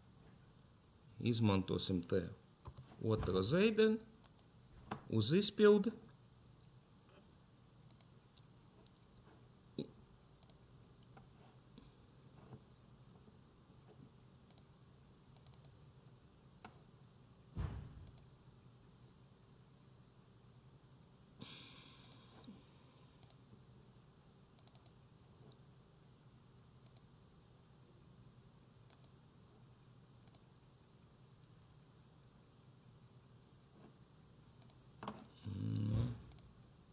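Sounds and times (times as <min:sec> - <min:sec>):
faint low hum: 0:00.0 - 0:36.9
low thump: 0:17.6 - 0:18.0
faint clicks: 0:30.2 - 0:30.4, 0:34.6 - 0:34.8.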